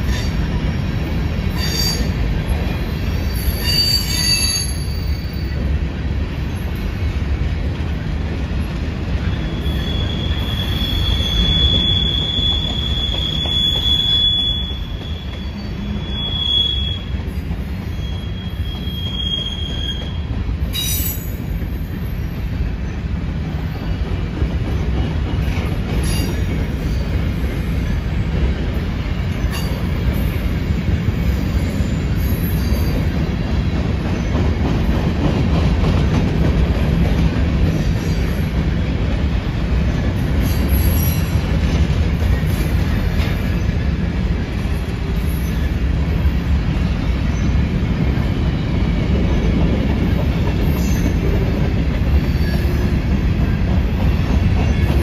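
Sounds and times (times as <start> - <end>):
train wheels rumbling on rails: 0.0 - 55.0
wheel squeal: 3.1 - 5.6, 9.3 - 17.2, 17.8 - 21.4, 50.6 - 51.4, 52.1 - 53.1.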